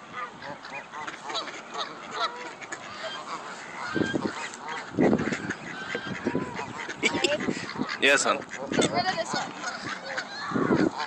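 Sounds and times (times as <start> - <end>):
ducks quacking: 0.0 - 11.0.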